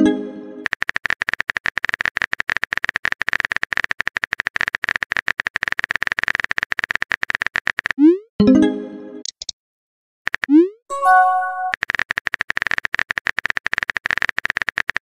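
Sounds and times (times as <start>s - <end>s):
phone keyboard typing clicks: 0.6s - 8.0s, 11.1s - 15.0s.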